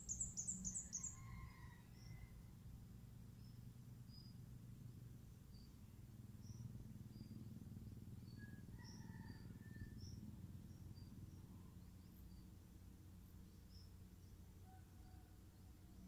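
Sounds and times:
low steady rumble: 1.8s - 14.7s.

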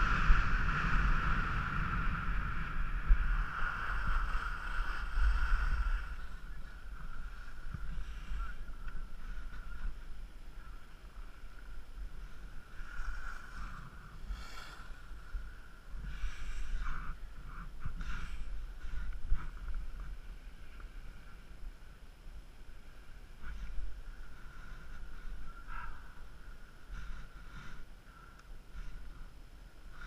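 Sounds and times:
wind buffeting microphone: 0.0s - 21.8s.

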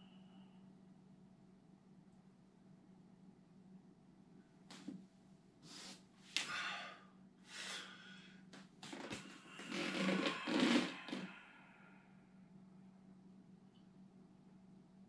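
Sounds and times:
person breathing deeply: 5.6s - 12.4s.

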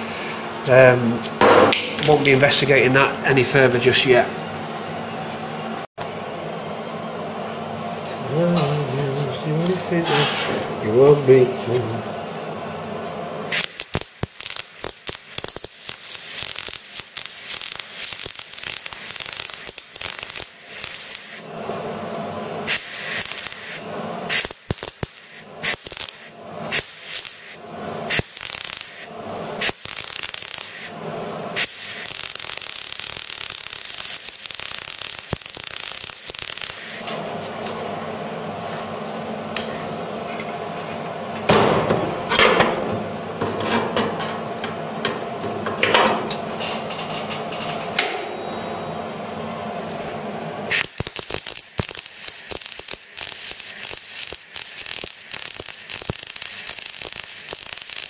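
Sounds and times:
spatter pops: 13.5s - 21.4s, 22.7s - 29.0s, 29.6s - 30.9s, 31.6s - 37.0s, 50.7s - 58.0s
welding arc crackling: 13.5s - 21.7s, 22.4s - 37.2s, 50.7s - 58.0s.

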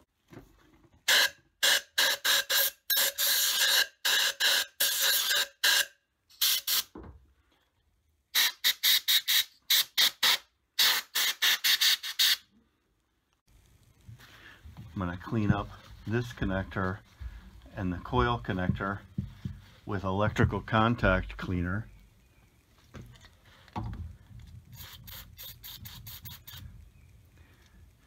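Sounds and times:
compressed air blasts hissing: 8.3s - 12.4s, 24.7s - 26.9s.

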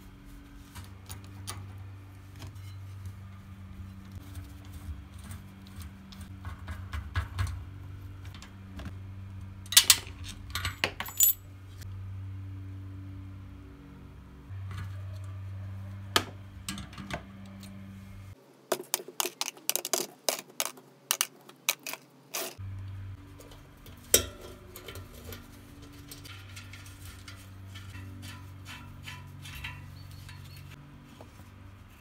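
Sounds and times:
small metal parts clinking: 9.7s - 11.4s, 19.2s - 22.6s.

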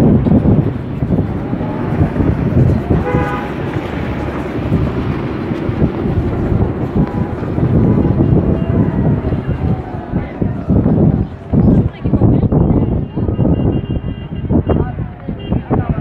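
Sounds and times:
trucks passing rumble: 0.0s - 16.0s
wind buffeting microphone: 0.0s - 16.0s
vehicle horn toot: 2.8s - 3.7s, 12.8s - 15.8s.

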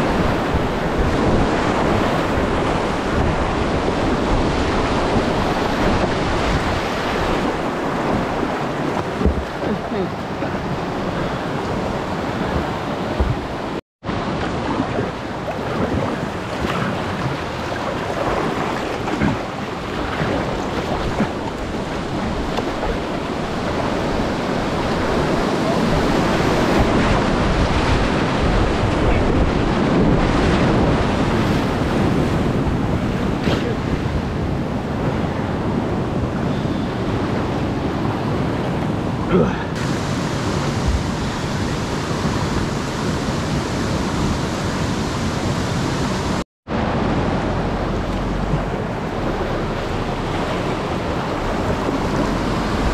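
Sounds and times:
water rushing over rapids: 0.0s - 37.3s, 38.0s - 52.9s.

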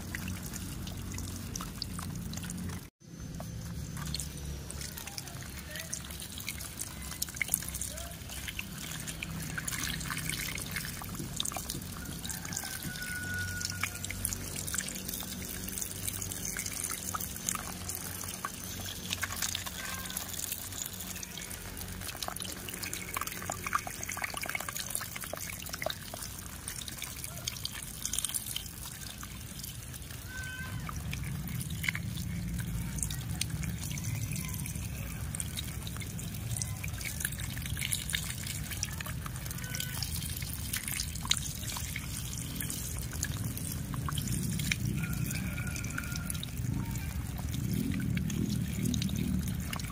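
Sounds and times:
water drips and splashes: 0.0s - 49.9s
water trickling over plastic toy: 0.0s - 49.9s
low rumble: 46.3s - 49.9s.

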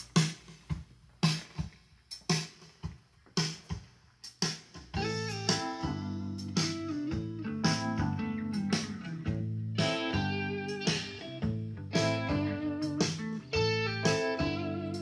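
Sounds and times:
bass chords: 5.0s - 15.0s
guitar song over speakers: 5.0s - 15.0s.

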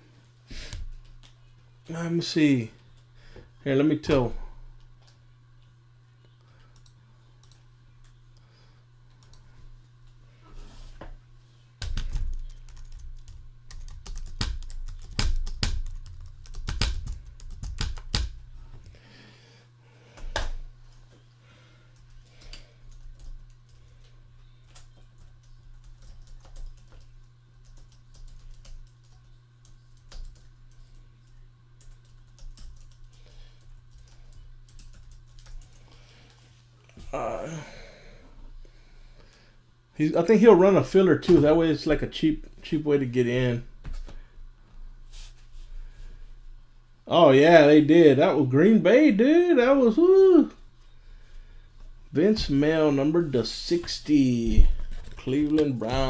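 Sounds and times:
steady low hum: 0.0s - 56.0s
typing on computer keyboard: 11.8s - 18.3s, 24.7s - 31.0s, 31.8s - 33.2s, 33.9s - 36.4s.

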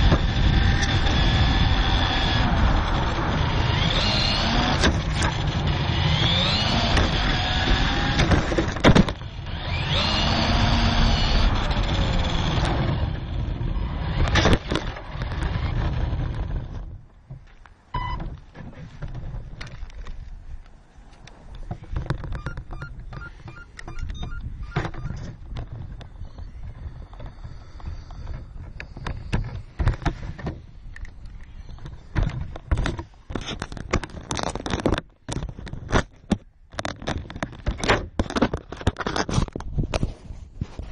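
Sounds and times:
toy car rumbling over gravel: 0.0s - 17.1s.

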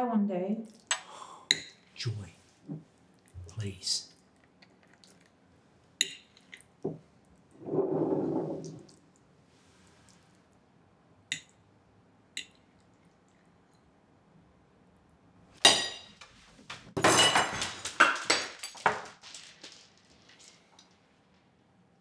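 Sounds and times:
wooden chair scraping on floor: 7.6s - 8.9s
tableware clinking: 15.6s - 16.2s, 17.0s - 19.8s.

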